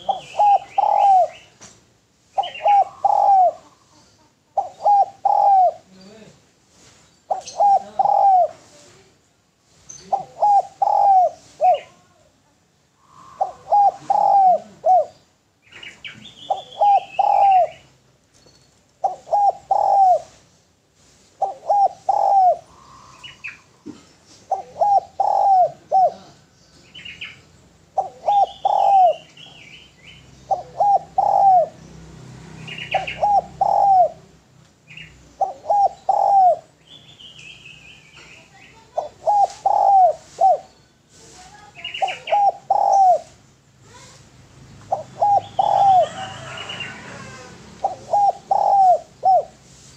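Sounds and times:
dove cooing: 0:00.0 - 0:01.5, 0:02.4 - 0:06.0, 0:07.3 - 0:08.7, 0:10.0 - 0:12.2, 0:13.0 - 0:15.2, 0:16.1 - 0:17.9, 0:19.0 - 0:20.4, 0:21.4 - 0:26.4, 0:27.9 - 0:29.7, 0:30.4 - 0:31.8, 0:32.6 - 0:36.8, 0:38.8 - 0:40.7, 0:41.5 - 0:44.2, 0:44.8 - 0:49.9
small birds chirping: 0:00.0 - 0:49.9.

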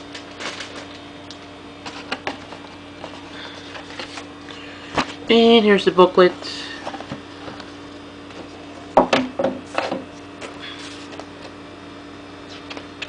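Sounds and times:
steady hum: 0:00.0 - 0:13.0
paper pages rustling: 0:01.8 - 0:04.3.

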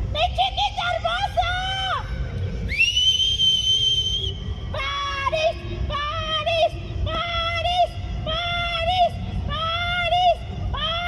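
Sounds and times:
wind: 0:00.0 - 0:11.0
shrill whistle tone: 0:02.7 - 0:04.4.

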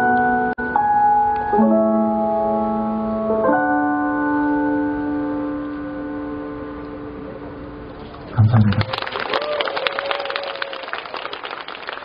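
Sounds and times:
keyboard playing slow chords: 0:00.0 - 0:08.6.

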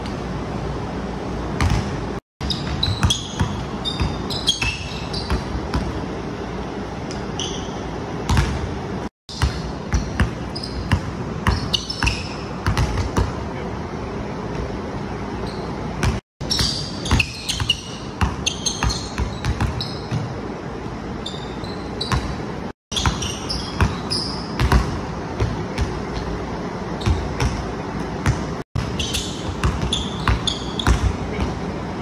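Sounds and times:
basketball bouncing on wooden floor: 0:01.6 - 0:06.0, 0:08.3 - 0:08.6, 0:09.3 - 0:13.4, 0:22.9 - 0:26.0, 0:27.0 - 0:31.6
sneaker squeaks: 0:01.6 - 0:06.1, 0:07.0 - 0:08.6, 0:09.3 - 0:13.3, 0:14.5 - 0:20.4, 0:21.2 - 0:31.7.

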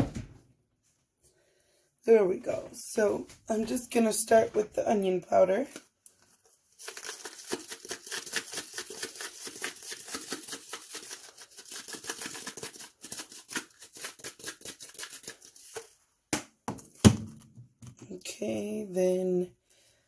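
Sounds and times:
spice shaker rattling: 0:06.8 - 0:15.8.

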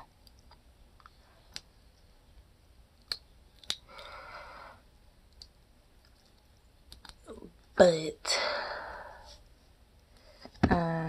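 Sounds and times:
sharp small clicks: 0:05.3 - 0:07.2.

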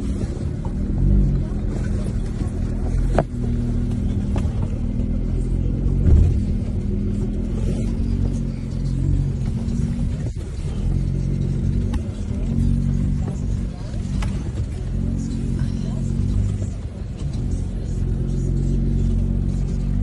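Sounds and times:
vehicle engine at low revs: 0:00.0 - 0:20.0
thud: 0:06.0 - 0:06.8.

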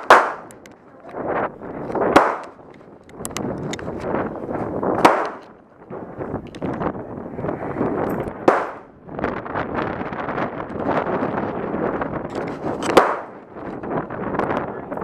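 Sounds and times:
gunshots with echo: 0:00.0 - 0:00.5, 0:02.1 - 0:02.6, 0:05.0 - 0:05.4, 0:08.4 - 0:08.9, 0:13.0 - 0:13.4
faint gunshot cracks: 0:05.0 - 0:05.4, 0:08.5 - 0:08.8, 0:13.0 - 0:13.3.

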